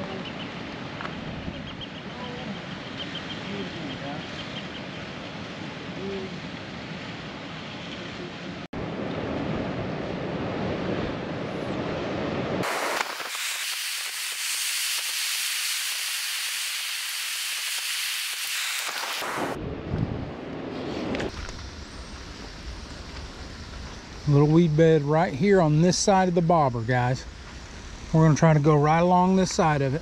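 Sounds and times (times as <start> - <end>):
wind rushing on microphone: 0.0 - 13.3, 18.8 - 24.7.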